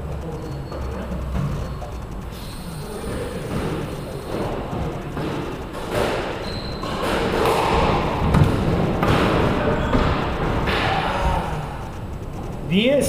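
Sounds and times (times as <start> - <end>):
squash ball knocks: 5.1 - 11.1.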